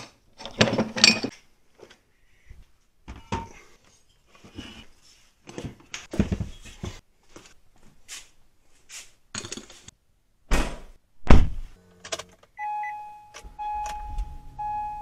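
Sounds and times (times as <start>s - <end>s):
car warning chime: 12.6s - 15.0s.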